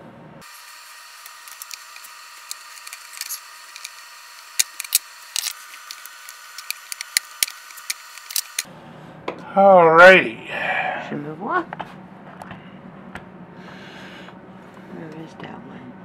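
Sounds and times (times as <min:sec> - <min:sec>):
plastic parts clicking and tapping: 0:01.3 - 0:08.7.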